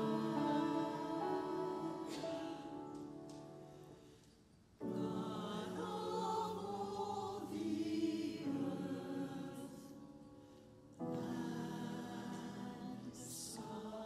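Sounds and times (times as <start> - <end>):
choir singing: 0.0 - 3.4, 4.8 - 10.2, 11.0 - 14.0
piano accompaniment: 0.0 - 4.2.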